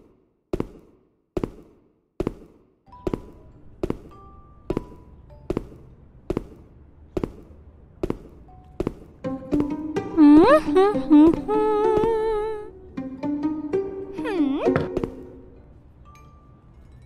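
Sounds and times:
quiet background music: 1.6 - 17.0
footsteps on wooden floor: 4.7 - 10.2, 14.6 - 15.4.

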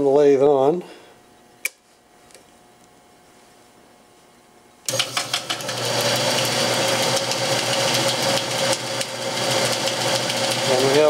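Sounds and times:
metal lathe motor humming: 4.9 - 11.0.

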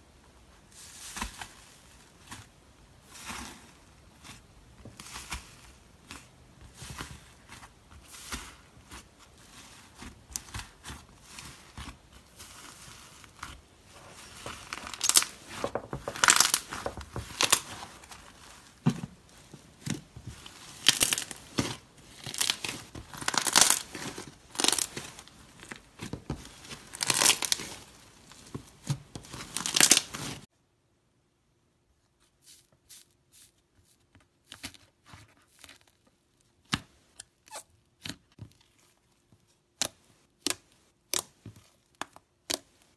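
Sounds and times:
slime crust crackling and crunching: 0.8 - 30.5.

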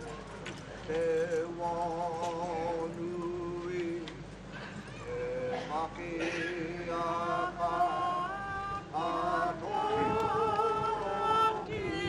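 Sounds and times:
group of voices singing: 5.1 - 12.0.

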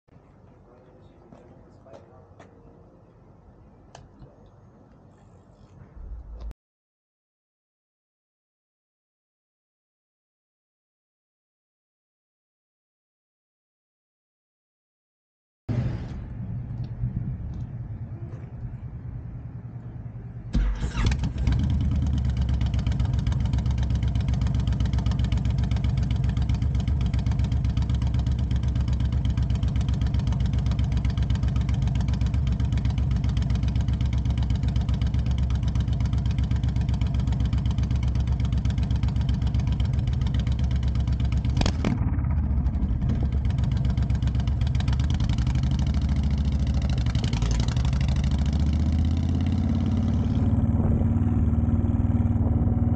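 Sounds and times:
motorcycle engine starting: 20.4 - 52.9
motorcycle deep idle: 21.1 - 48.6.

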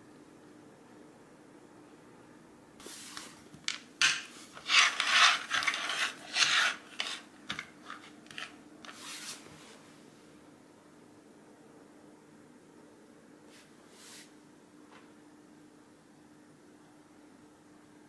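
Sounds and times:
plastic cups sliding on wooden floor: 2.8 - 9.6.

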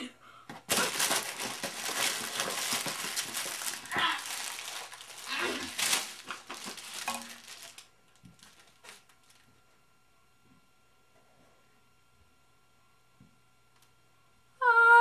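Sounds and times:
packaging crinkling and tearing: 0.7 - 9.5.

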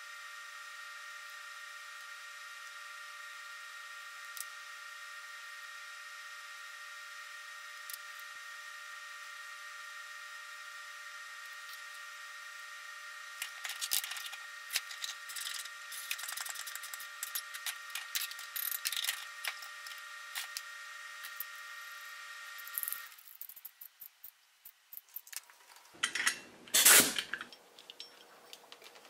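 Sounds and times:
steady high hum: 0.0 - 29.0
metal fittings clicking and scraping: 13.4 - 21.6, 22.6 - 29.0.

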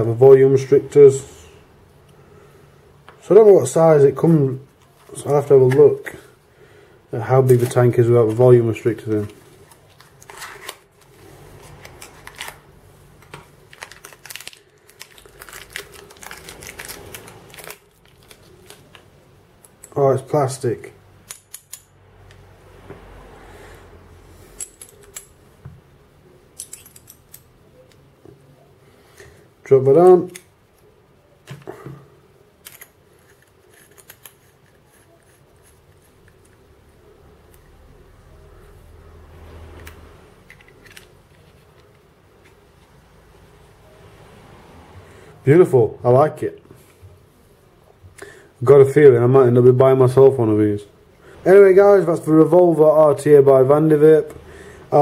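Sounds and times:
packaging clicks and crinkles: 9.2 - 19.9
metal and glass parts clicking: 21.2 - 21.9, 24.6 - 25.4, 26.6 - 27.5, 32.6 - 36.6.

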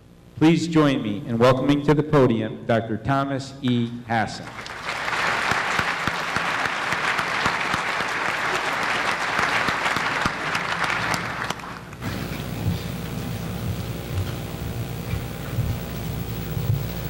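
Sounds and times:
audience applauding: 4.4 - 13.4.

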